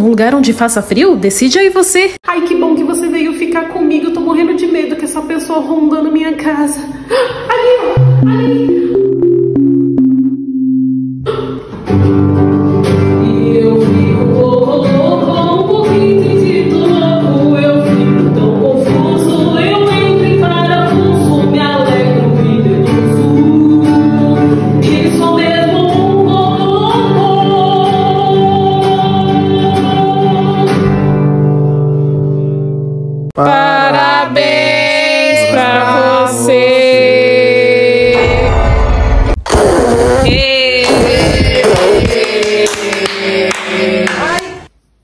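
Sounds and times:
acoustic guitar: 7.8s - 38.8s
person singing: 7.9s - 11.8s, 13.0s - 30.9s, 33.4s - 39.0s, 40.2s - 44.7s.

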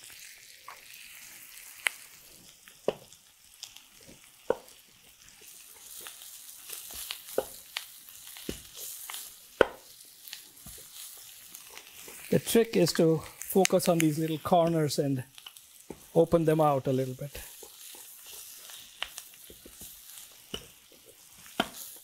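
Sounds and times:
potatoes sizzling in oil: 0.0s - 22.0s
spatula scraping and knocking pan: 5.4s - 7.7s, 17.4s - 22.0s.

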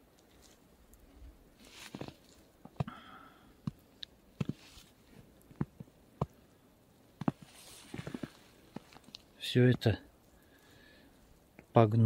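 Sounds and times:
footsteps crunching on snow: 1.6s - 2.5s, 7.2s - 9.1s.

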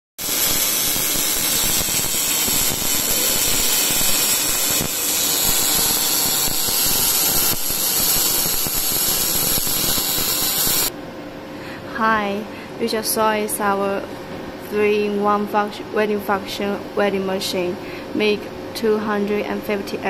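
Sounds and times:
welding arc crackling: 0.2s - 10.9s.

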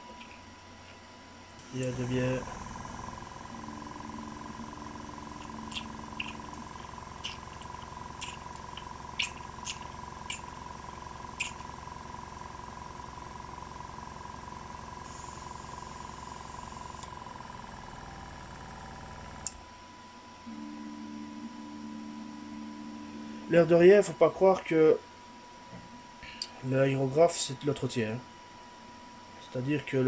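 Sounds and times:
airbrush compressor humming: 1.5s - 19.6s.

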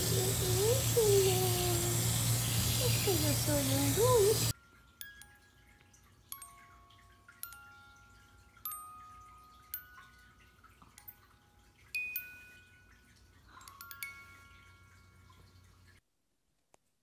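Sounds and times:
music box playing slow tune: 4.5s - 16.0s.

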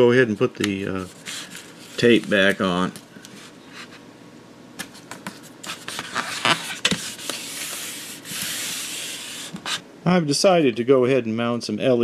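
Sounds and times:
hands rubbing tape: 4.8s - 9.8s.

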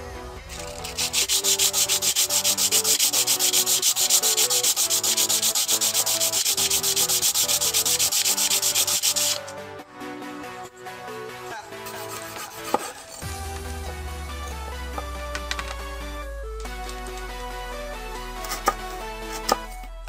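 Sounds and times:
bamboo rubbed on sandpaper: 0.5s - 9.5s, 11.8s - 13.3s.

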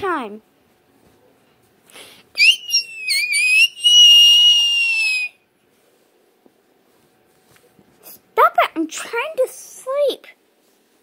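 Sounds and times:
person whistling shrilly: 2.4s - 5.4s.

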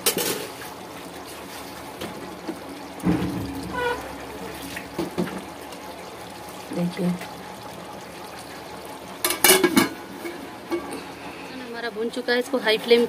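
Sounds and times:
curry bubbling and sizzling: 0.0s - 13.0s
thump: 3.0s - 5.6s.

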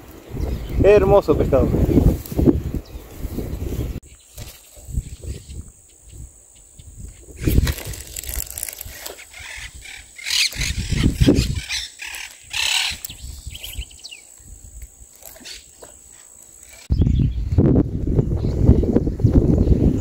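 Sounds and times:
high insect drone: 4.1s - 16.9s
fishing gear rustling and knocking: 7.4s - 9.4s, 13.5s - 16.9s.

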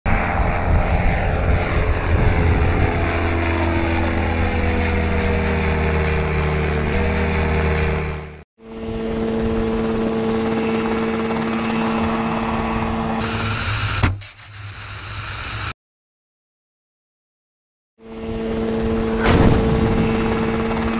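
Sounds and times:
helicopter engine hum: 0.0s - 15.7s, 18.0s - 20.9s
propeller engine hum: 0.0s - 15.7s, 18.0s - 20.9s.

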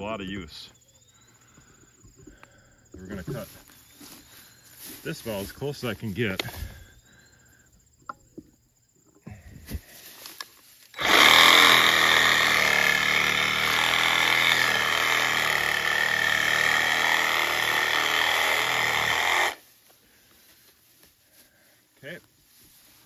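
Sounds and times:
reciprocating saw cutting wood: 11.0s - 19.6s.

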